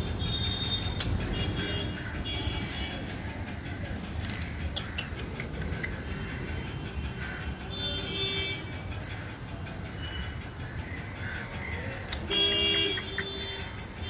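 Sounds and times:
vehicle horns honking: 0.0s - 3.1s, 7.7s - 8.9s, 12.2s - 13.8s
steady background hum: 0.0s - 14.0s.

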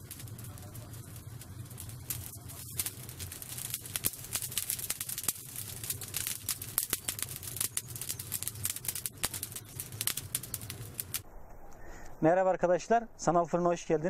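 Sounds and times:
wood fire crackling: 0.0s - 12.1s
steady low hum: 0.0s - 13.6s.

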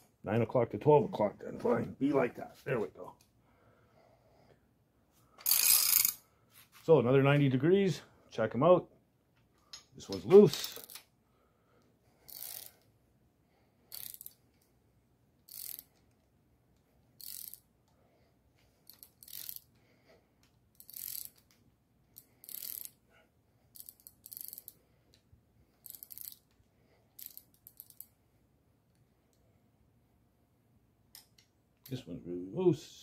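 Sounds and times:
socket ratchet clicking: 12.3s - 12.8s, 13.9s - 14.4s, 15.5s - 15.9s, 18.9s - 19.7s, 20.8s - 21.6s, 23.8s - 24.8s, 25.8s - 26.6s, 27.2s - 28.1s.

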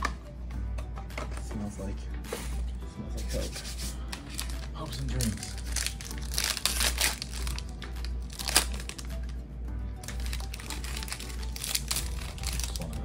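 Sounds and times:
foil wrapper crinkling: 4.2s - 9.4s, 10.0s - 13.0s.

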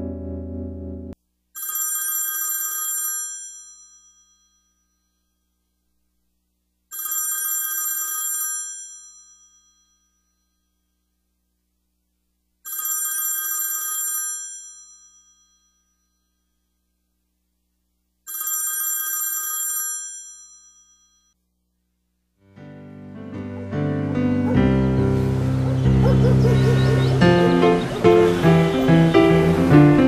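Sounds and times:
telephone bell ringing: 1.6s - 4.8s, 6.9s - 10.2s, 12.6s - 16.4s, 18.3s - 21.4s.

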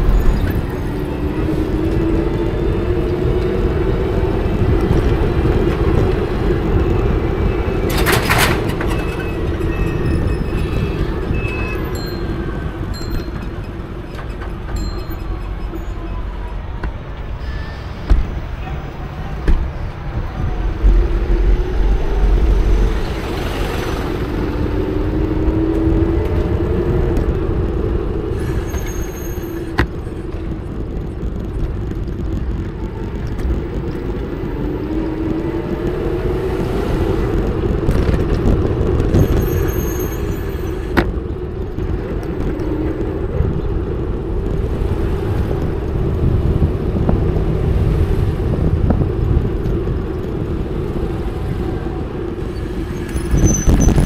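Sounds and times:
street traffic rumble: 0.0s - 54.0s
wind on microphone: 0.0s - 54.0s
high-pitched squeal: 19.8s - 25.5s.

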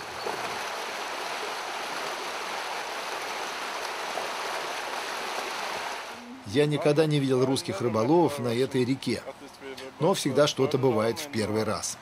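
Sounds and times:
river rushing over rocks: 0.0s - 6.3s.

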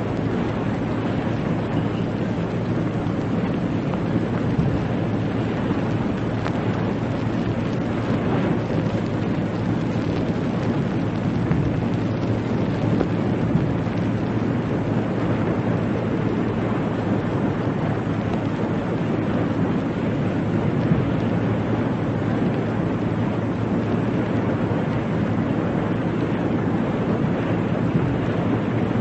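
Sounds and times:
sea noise: 0.0s - 29.0s
wind: 0.0s - 29.0s.

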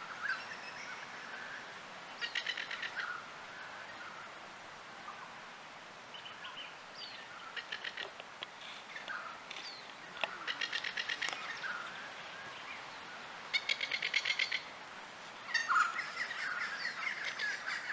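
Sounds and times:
lapwing rattling calls: 2.1s - 3.2s, 7.1s - 8.2s, 8.9s - 12.1s, 13.5s - 14.7s, 15.5s - 17.9s.

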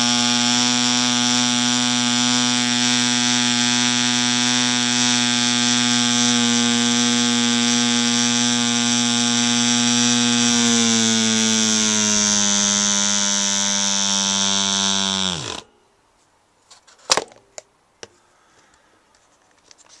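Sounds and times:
model diesel engine running: 0.0s - 15.6s.

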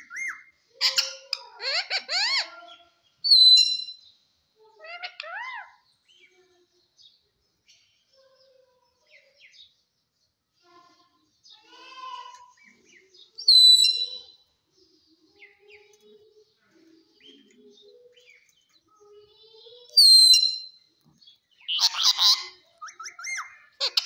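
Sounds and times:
bird scratchy chatter: 0.0s - 2.9s, 21.6s - 24.0s
parakeet screeching: 0.1s - 2.6s, 21.7s - 24.0s.

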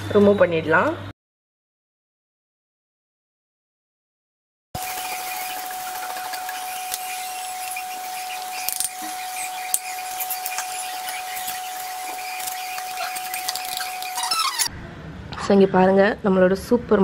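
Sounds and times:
thin steady whine: 4.8s - 14.8s.

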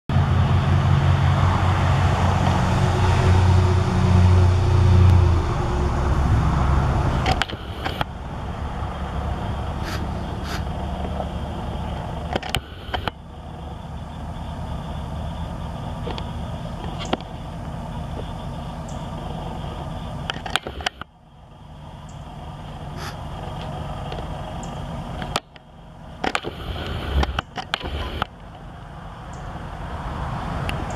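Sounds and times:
traffic rumble: 0.1s - 30.9s
vehicle engine humming low: 0.1s - 30.9s
sharp clicks: 7.2s - 8.1s, 12.2s - 13.2s, 20.2s - 21.1s, 23.6s - 28.3s.

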